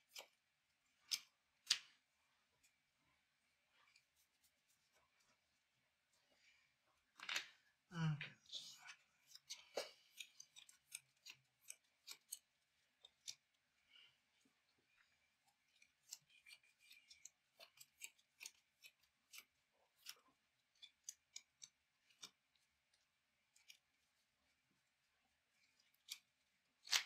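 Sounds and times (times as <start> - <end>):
cards clicking and tapping on table: 1.1 - 2.0.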